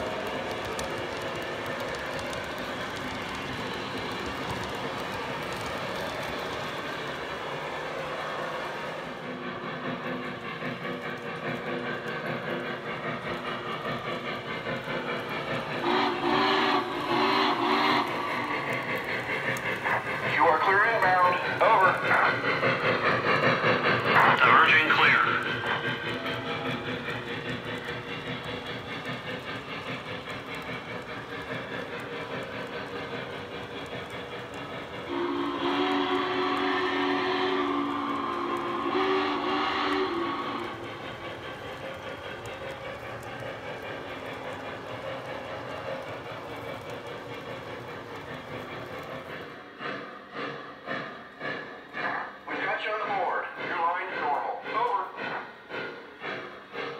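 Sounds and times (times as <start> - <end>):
rumble of model train wheels: 0.0 - 52.4
model train steam chuffing: 0.0 - 56.9
steam whistle blasts: 35.0 - 40.8.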